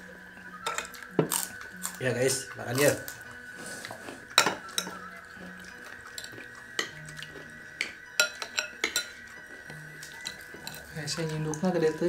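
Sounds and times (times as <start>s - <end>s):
metal spoons clinking on dishes: 4.3s - 5.0s, 6.1s - 9.4s, 10.0s - 11.3s.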